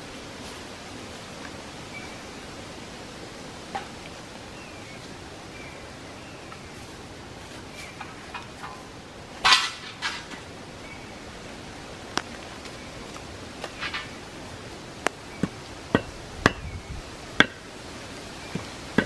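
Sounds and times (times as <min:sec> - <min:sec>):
firewood cracking: 0:12.1 - 0:14.3.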